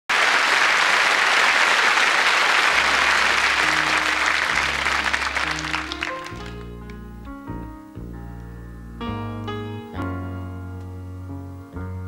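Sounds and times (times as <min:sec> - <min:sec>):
audience applauding: 0:00.1 - 0:07.0
soft bass and keyboard intro: 0:02.8 - 0:12.0.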